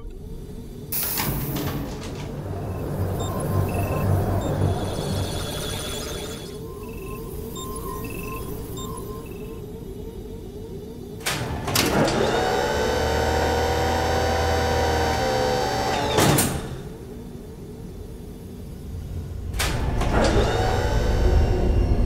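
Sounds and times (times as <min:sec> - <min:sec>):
whirring mechanical tone: 0:00.0 - 0:22.0
sci-fi door hits: 0:00.9 - 0:04.6.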